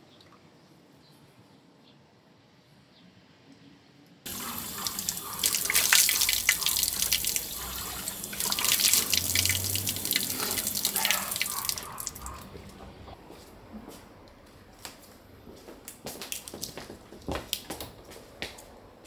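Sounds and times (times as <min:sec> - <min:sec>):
tap water splashing into basin: 0:04.3 - 0:12.5
sharp drips and splashes: 0:04.3 - 0:12.9.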